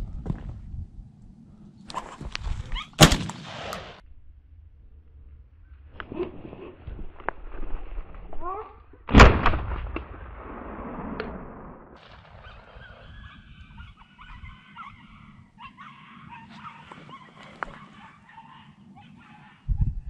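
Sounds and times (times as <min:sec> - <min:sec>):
dogs yelping: 0:02.0 - 0:03.0, 0:12.3 - 0:19.8
shotgun shot with echo: 0:03.0 - 0:04.0.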